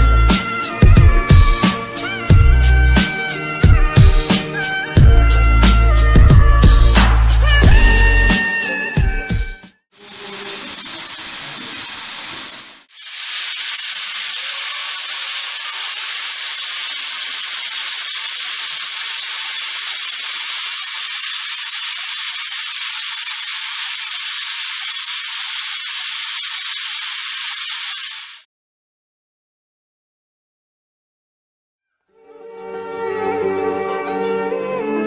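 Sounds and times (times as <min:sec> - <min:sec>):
pressure cooker venting steam: 0:10.0 - 0:28.4.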